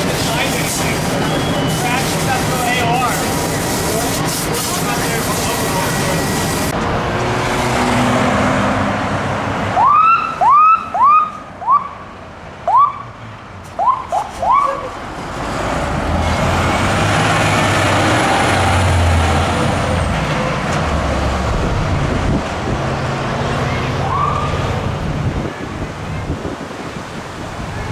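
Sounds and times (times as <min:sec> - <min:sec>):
diesel engine driving past: 0:06.1 - 0:09.8, 0:14.4 - 0:26.1
siren chirps: 0:09.8 - 0:12.0, 0:13.8 - 0:14.9, 0:23.7 - 0:24.6.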